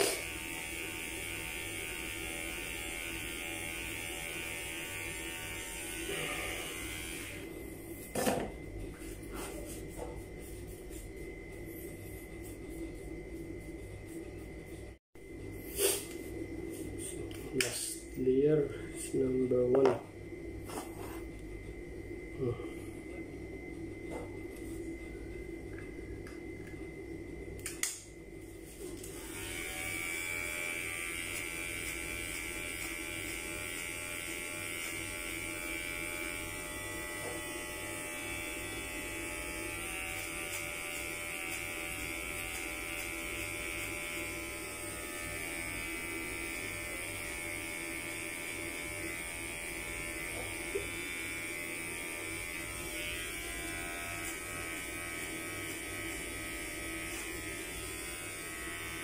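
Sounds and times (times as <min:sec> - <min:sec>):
electric hair clippers buzzing: 0:00.0 - 0:11.1, 0:27.6 - 0:59.0
sharp click: 0:27.6 - 0:28.1.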